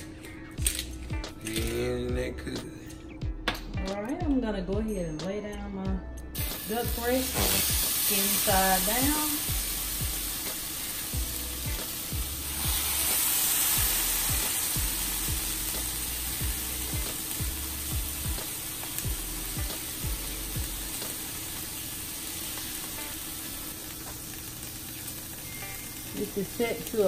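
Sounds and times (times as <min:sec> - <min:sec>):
background music with steady beat: 0:00.0 - 0:27.0
meat sizzling in a frying pan: 0:06.4 - 0:27.0.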